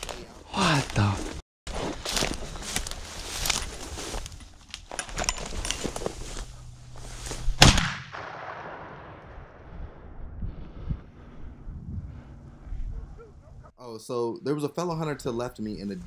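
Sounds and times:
dry grass crackling and rustling: 0.0 - 7.9
shotgun shot echoing: 7.6 - 9.5.

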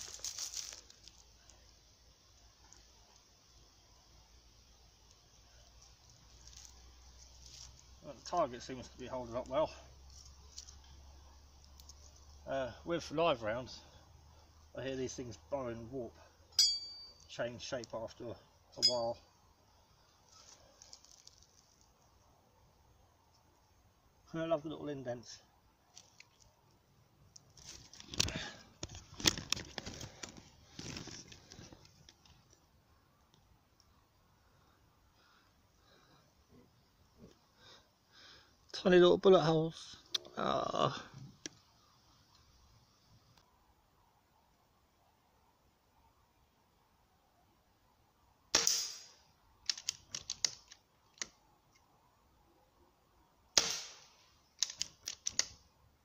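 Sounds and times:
rustling in dry leaves: 0.0 - 1.8, 5.6 - 12.3, 20.2 - 22.0, 27.5 - 32.5
air rifle shots: 48.5 - 49.2, 53.6 - 54.1
sharp clicks: 49.6 - 51.4, 54.6 - 55.6.

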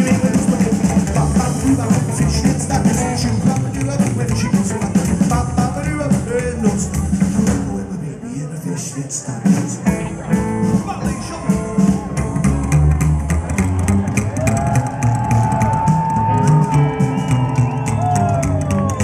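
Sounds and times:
drums and bass: 0.0 - 19.0
electric guitar lead: 16.2 - 19.0.

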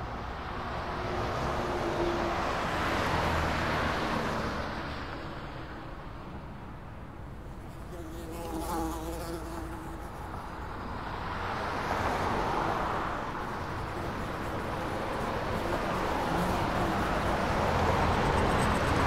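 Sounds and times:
flies buzzing: 7.6 - 10.8, 13.4 - 18.9.

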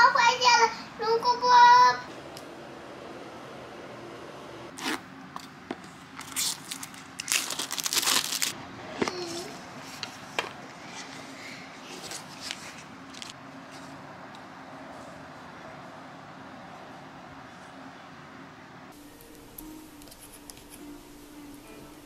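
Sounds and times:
packaging crinkling and rustling: 6.2 - 8.6.

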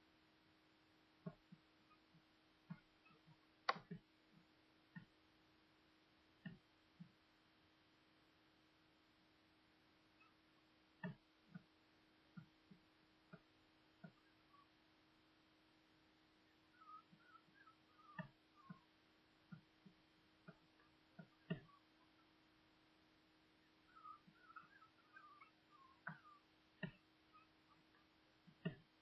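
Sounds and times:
faint steady hum: 0.0 - 29.0
soft taps and clicks: 19.5 - 21.7, 26.0 - 27.0, 28.4 - 28.9.

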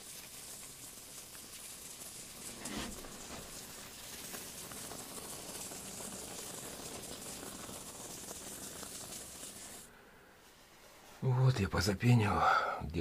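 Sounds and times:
spray foam hissing and sputtering: 0.0 - 9.9.

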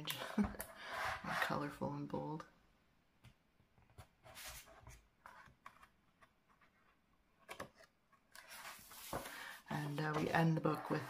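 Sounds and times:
book pages rustling: 4.3 - 11.0.

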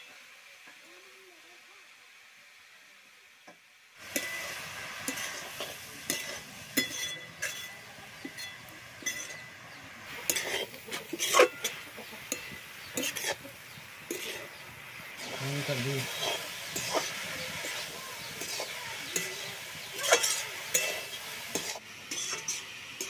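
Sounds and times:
food sizzling: 0.0 - 23.0
metal spatula scraping wok: 4.0 - 23.0.

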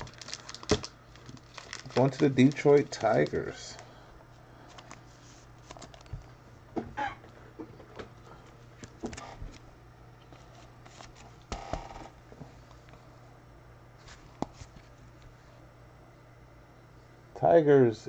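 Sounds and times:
trading cards clicking and rustling: 0.0 - 3.8, 4.6 - 6.3
faint low hum: 0.0 - 18.0.

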